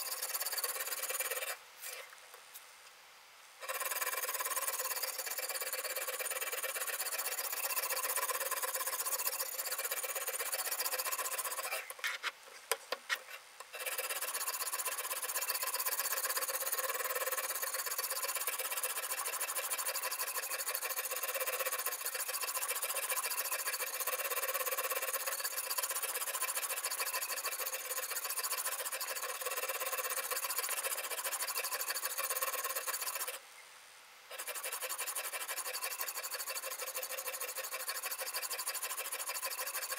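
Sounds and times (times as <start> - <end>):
stone scraping knife edge: 34.3 - 39.9.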